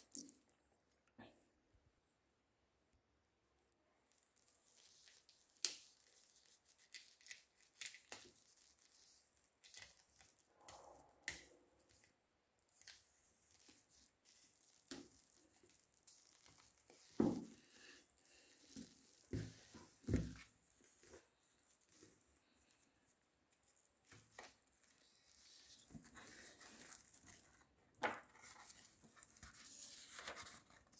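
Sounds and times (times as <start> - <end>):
plastic film crackling: 4.1 - 10.5, 12.6 - 17.2, 23.7 - 27.8.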